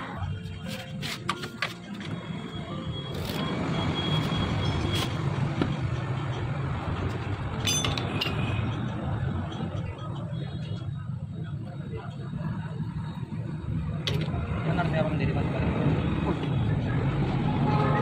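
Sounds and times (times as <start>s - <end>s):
metal clinking: 7.4s - 9.7s.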